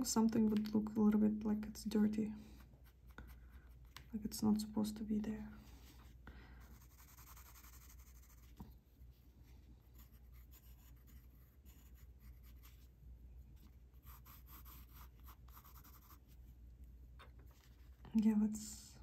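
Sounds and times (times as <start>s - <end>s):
low room hum: 0.0s - 19.0s
pencil scratching on paper: 6.6s - 8.6s, 9.9s - 12.8s, 14.0s - 16.3s.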